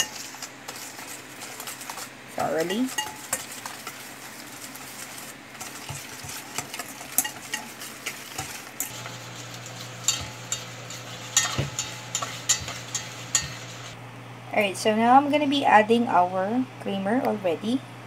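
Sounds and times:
wire whisk scraping metal bowl: 0.0 - 14.0.

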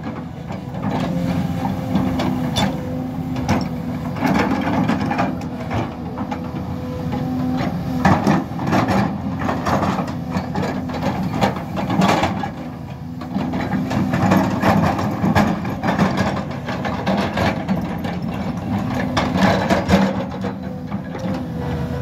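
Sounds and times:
metallic clanks from bucket and tracks: 0.0 - 21.6
excavator diesel engine running: 0.0 - 22.0.

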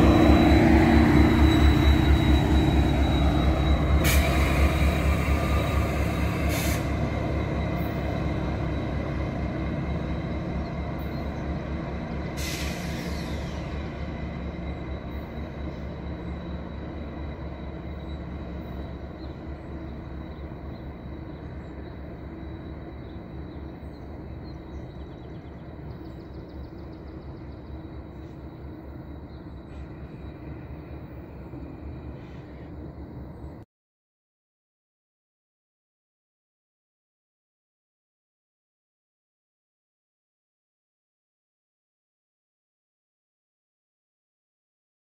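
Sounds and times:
diesel train rumble: 0.0 - 33.6.

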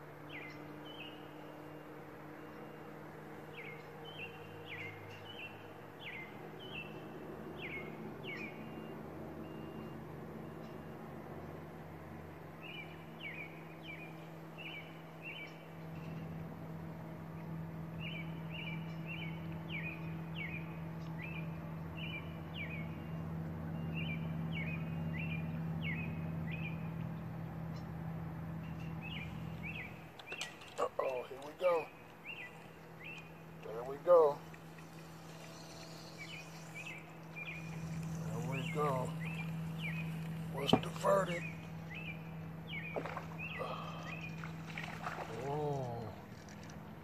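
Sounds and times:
steady low hum: 0.0 - 47.0
songbird whistling: 34.6 - 44.5.

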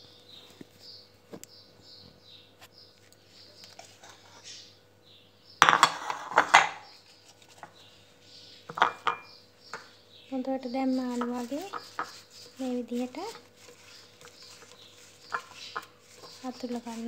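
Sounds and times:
ceramic plates clinking: 5.6 - 6.8, 8.7 - 9.8, 11.2 - 12.3, 14.2 - 17.0
faint high chirping: 6.8 - 17.0.

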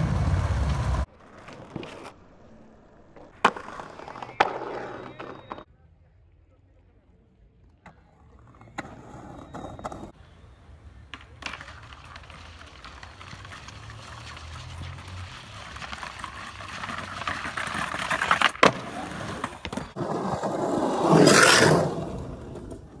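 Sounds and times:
skateboard clack: 0.0 - 2.4, 3.1 - 5.7, 7.8 - 10.2, 10.8 - 23.0
skateboard wheels rolling: 0.0 - 5.7, 7.6 - 23.0
skateboard grinding on ledge: 3.2 - 5.6, 11.4 - 23.0.

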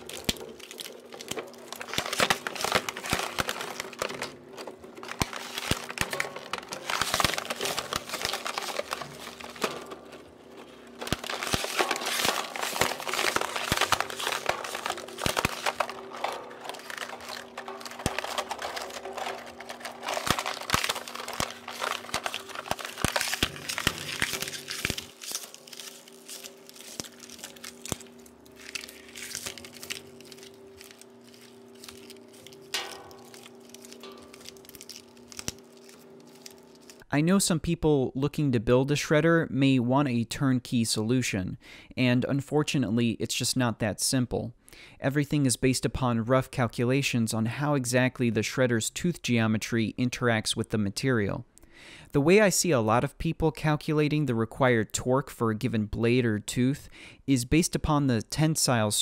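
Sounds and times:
plastic bottle crunching in shredder: 0.0 - 37.0
shredder drive hum: 0.0 - 37.0.

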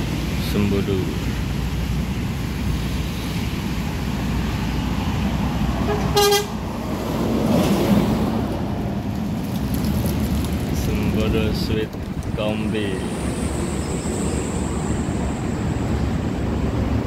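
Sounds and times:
bus engine and tyres passing: 0.0 - 17.0
traffic noise: 0.0 - 17.0
bus horn toot: 5.8 - 6.6.

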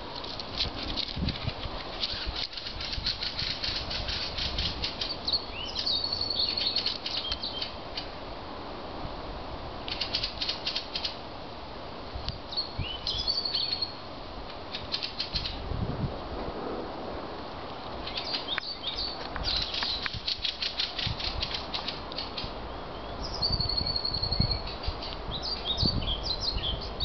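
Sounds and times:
songbird singing with trill: 4.9 - 7.8, 12.5 - 14.0, 18.0 - 20.3, 22.2 - 27.0.

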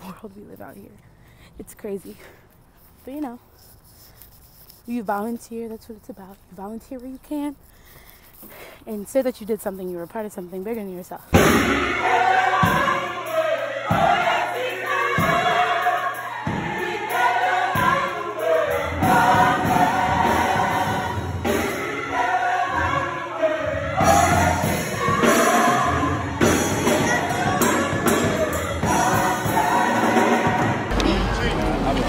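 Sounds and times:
crowd and choir singing gospel: 11.3 - 32.0.

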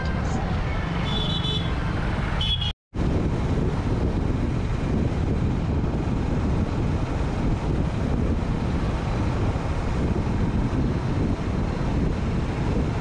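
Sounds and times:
wind buffeting microphone: 2.9 - 13.0.

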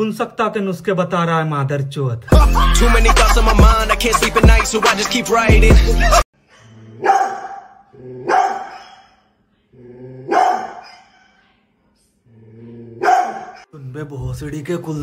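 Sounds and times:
hip-hop music: 2.3 - 6.3
large dog barking: 7.0 - 9.2, 10.3 - 11.1, 13.0 - 13.7.

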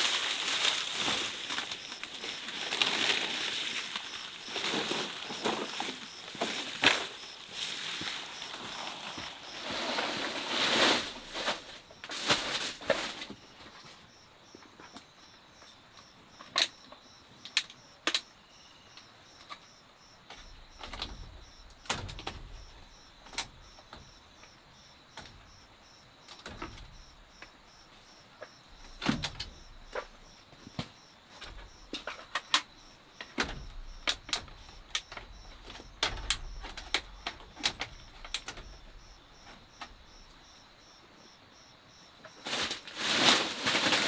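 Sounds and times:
dry palm fronds rustling: 0.0 - 14.0, 42.3 - 44.0.

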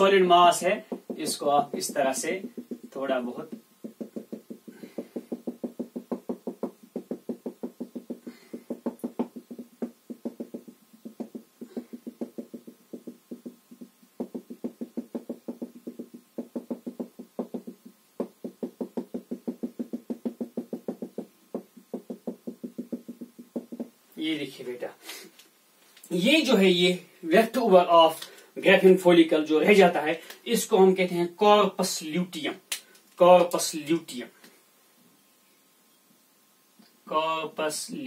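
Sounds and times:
marker tapping on whiteboard: 0.7 - 24.0.

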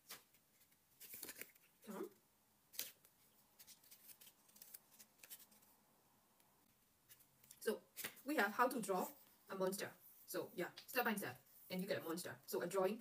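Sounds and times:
paper pages rustling and turning: 0.0 - 1.9, 2.7 - 5.8.

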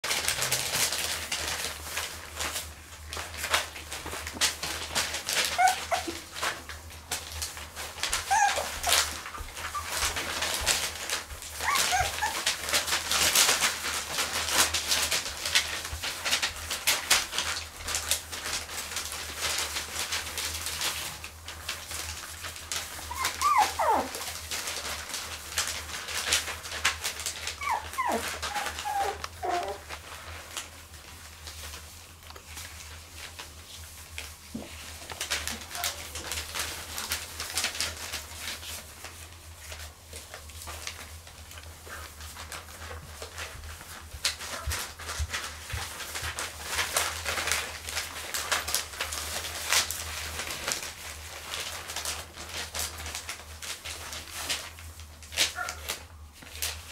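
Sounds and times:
newspaper crackling under paws: 0.0 - 56.9
puppies whimpering and yelping: 5.4 - 6.3, 8.1 - 10.6, 11.6 - 12.9, 23.0 - 24.3, 27.4 - 30.0.

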